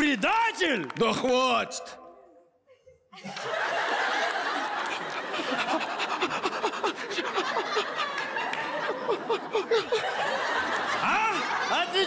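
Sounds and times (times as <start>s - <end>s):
audience laughing and clapping: 3.2s - 12.0s.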